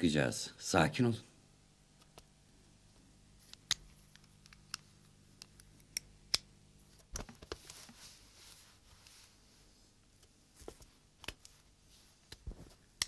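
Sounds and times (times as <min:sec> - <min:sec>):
cloth rustling: 0:07.3 - 0:09.8, 0:10.4 - 0:13.0.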